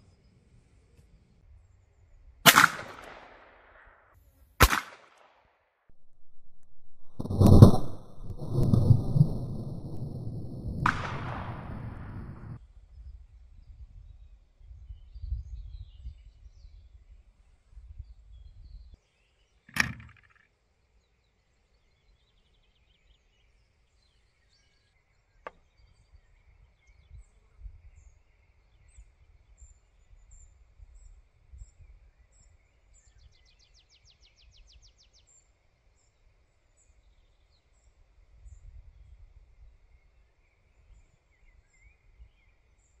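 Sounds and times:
wind rumbling on microphone: 5.9 - 19.0, 38.2 - 40.2.

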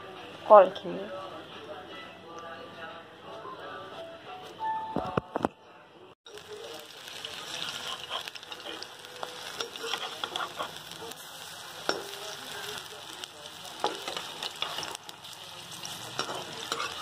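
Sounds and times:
fritters sizzling in hot oil: 6.3 - 17.0.

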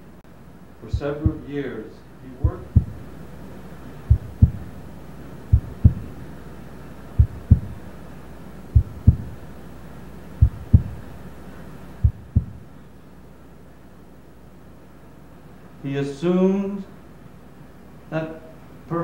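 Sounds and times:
heartbeat thumps: 0.9 - 1.5, 2.4 - 3.1, 4.1 - 4.8, 5.5 - 6.2, 7.2 - 7.9, 8.7 - 9.4, 10.4 - 11.1, 12.0 - 12.7.

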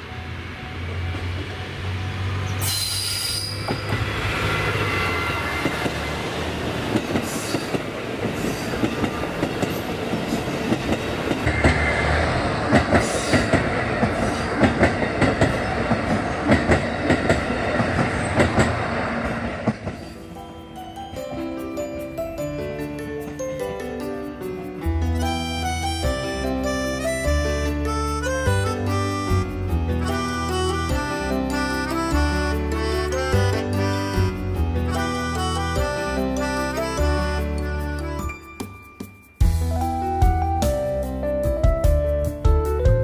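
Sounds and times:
diesel railcar engine droning: 0.0 - 20.7
high wheel squeal: 2.4 - 6.2
train wheels clicking over rail joints: 2.6 - 20.3.

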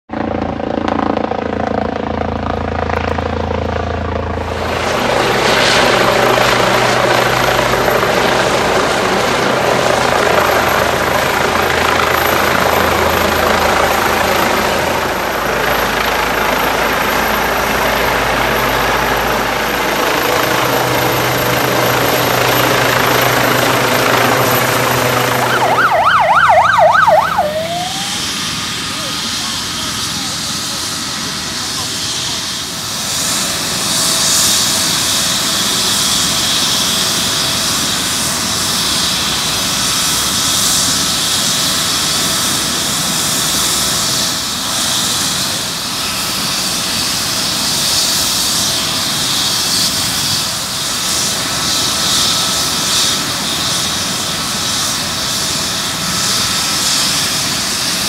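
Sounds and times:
helicopter rotor and turbine: 0.1 - 58.0
fire engine siren wailing: 17.7 - 30.4.

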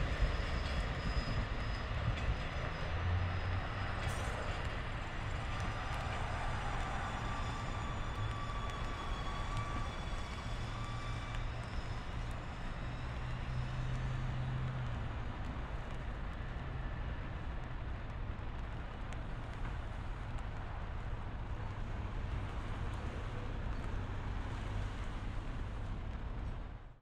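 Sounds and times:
train rumbling past: 0.0 - 27.0.

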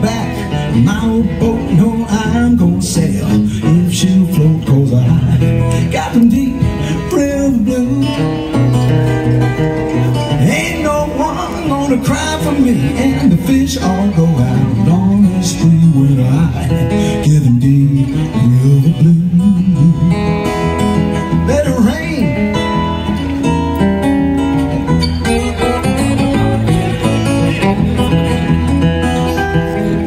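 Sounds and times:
man singing: 0.0 - 23.0
fingerpicked acoustic guitar: 0.0 - 30.0.

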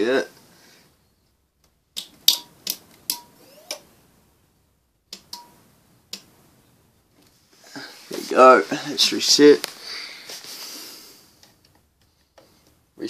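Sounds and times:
alarm switch clicking: 2.0 - 3.8, 5.1 - 6.3.

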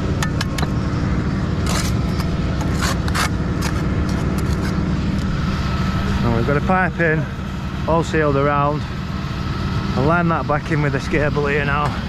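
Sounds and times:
engine idling: 0.0 - 12.0
trowel scraping mortar: 1.6 - 5.2.

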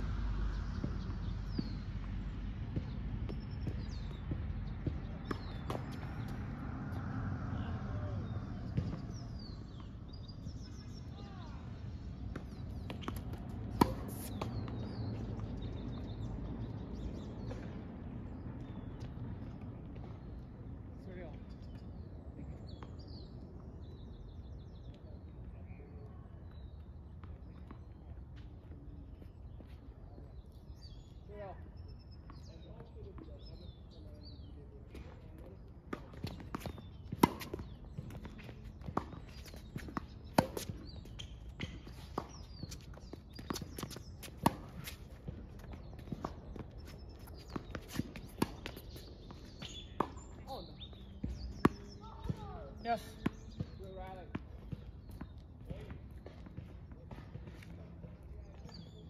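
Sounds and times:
birds chirping: 0.2 - 59.0
ball bouncing on hard court: 2.7 - 6.6, 8.5 - 9.9, 12.2 - 15.7
racket hitting tennis ball: 12.8 - 14.9, 35.9 - 50.3
tennis racket hitting ball: 12.9 - 14.6
footsteps on hard court: 35.9 - 58.2.

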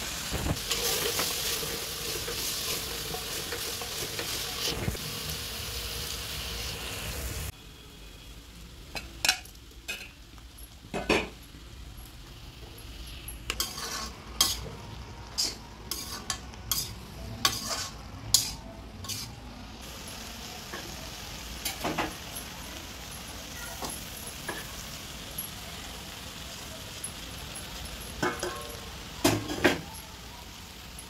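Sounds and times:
food sizzling: 0.0 - 31.0
metal spatula scraping a pan: 0.6 - 4.9, 13.5 - 19.4.

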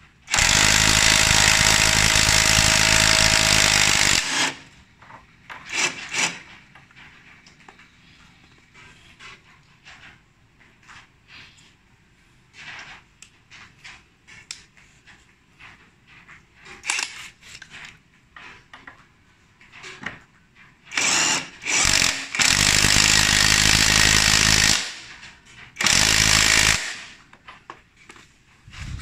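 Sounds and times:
impact wrench hammering: 0.3 - 4.7, 5.5 - 6.5, 20.9 - 25.1, 25.8 - 27.2.

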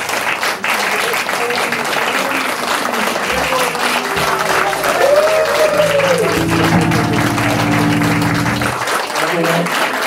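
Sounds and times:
audience applauding: 0.0 - 10.0
crowd cheering: 0.6 - 9.3
band chord ringing: 4.2 - 8.8.

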